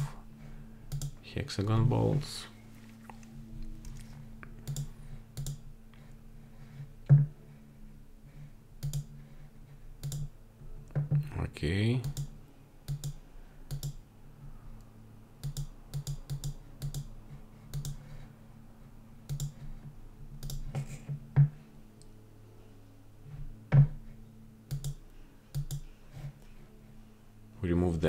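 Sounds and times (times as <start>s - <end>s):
faint low hum: 0.0s - 28.0s
computer clicking: 0.9s - 1.2s, 4.6s - 5.6s, 8.8s - 9.1s, 10.0s - 10.3s, 12.0s - 12.3s, 12.9s - 14.0s, 15.4s - 17.1s, 17.7s - 18.0s, 19.3s - 19.6s, 20.4s - 20.7s, 24.7s - 25.8s.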